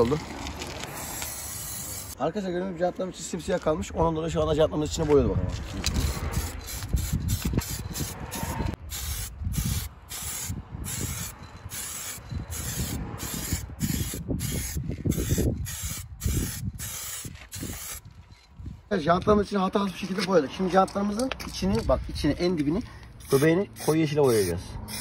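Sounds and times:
spray-paint can hissing: 0.9 - 2.2, 6.0 - 18.0, 23.2 - 25.0.

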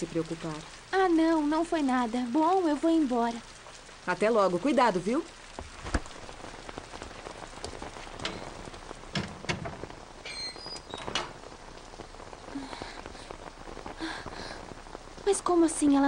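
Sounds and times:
rain falling on pavement: 0.0 - 16.0.

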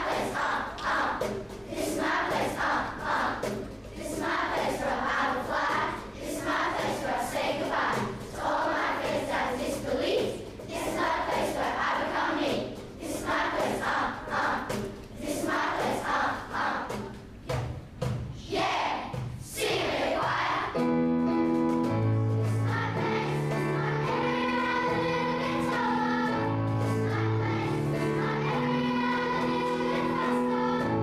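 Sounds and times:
children's choir singing: 0.0 - 21.1, 21.9 - 31.0
instrumental backing: 19.6 - 31.0.

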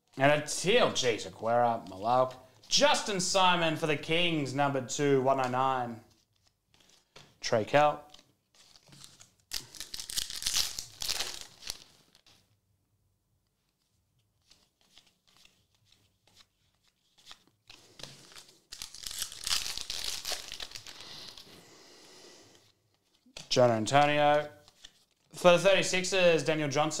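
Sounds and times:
foil wrapper tearing and crinkling: 8.5 - 12.3, 17.0 - 21.5.

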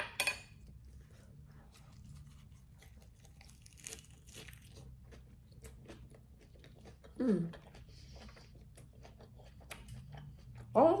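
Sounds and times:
lettuce crunching: 1.7 - 10.0.

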